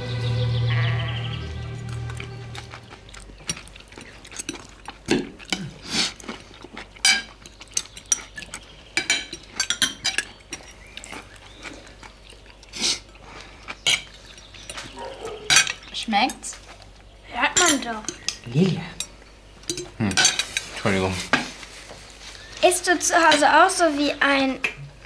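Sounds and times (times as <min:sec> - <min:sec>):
person eating noisily: 0:01.2 - 0:20.8
cutlery clinking on plates: 0:03.4 - 0:05.7, 0:07.0 - 0:10.8, 0:13.8 - 0:16.4, 0:19.0 - 0:20.7.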